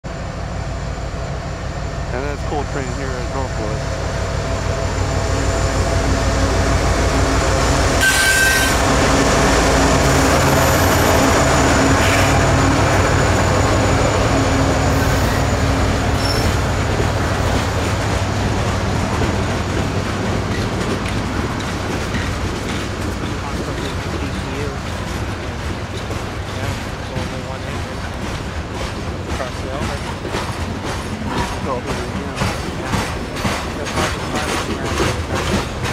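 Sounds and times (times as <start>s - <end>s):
diesel locomotive engine drone: 0.0s - 35.9s
train wheels rumbling on rail: 0.0s - 35.9s
high squeal: 8.0s - 8.9s, 14.9s - 16.6s.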